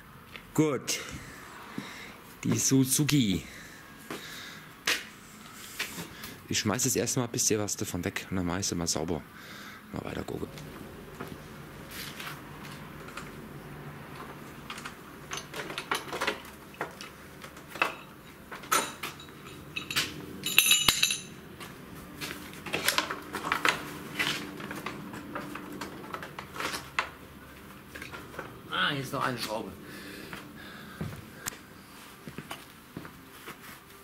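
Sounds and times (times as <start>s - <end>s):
metallic clinks of hand tools: 18.7s - 21.4s.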